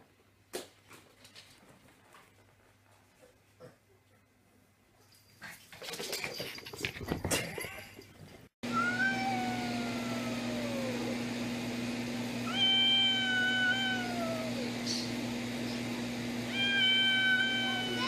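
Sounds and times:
cat yowling: 0:08.7 - 0:11.2, 0:12.4 - 0:14.7, 0:16.5 - 0:18.0.

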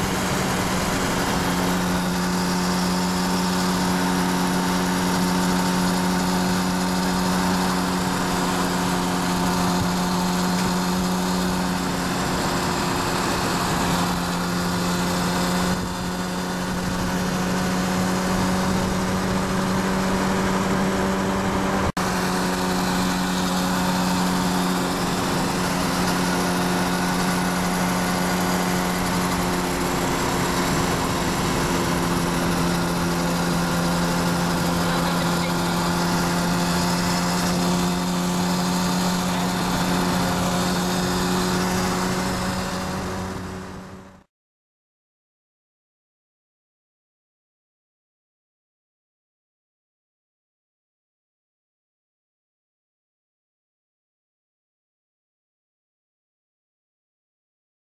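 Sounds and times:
motorcycle engine cruising: 0:00.0 - 0:44.3
road and wind noise: 0:00.0 - 0:44.3.

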